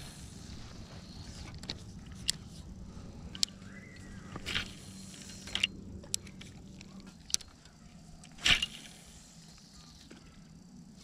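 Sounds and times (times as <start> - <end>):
steady low hum: 0.0 - 11.0
reel clicks and sleeve rustles: 0.5 - 9.0.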